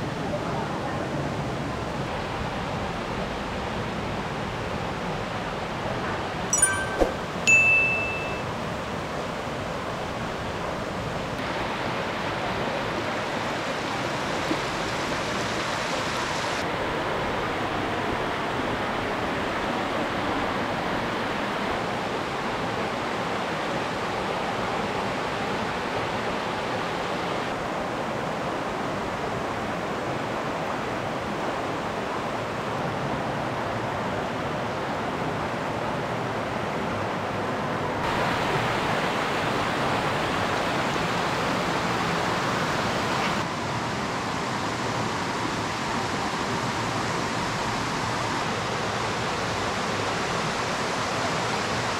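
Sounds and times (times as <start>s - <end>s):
stream rushing over rocks: 38.0s - 51.9s.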